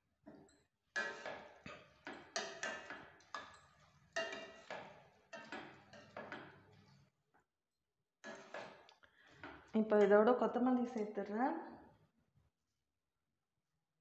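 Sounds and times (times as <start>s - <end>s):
steel ladle clinking on a pan: 1.0s - 6.6s.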